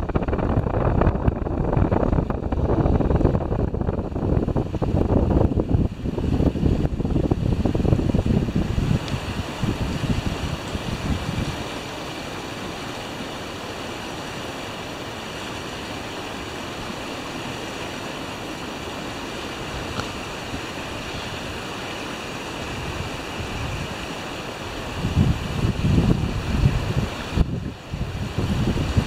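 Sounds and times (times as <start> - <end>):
wind rushing: 0.0 - 12.0, 24.8 - 29.0
water rushing: 0.0 - 29.0
wind buffeting microphone: 0.0 - 29.0.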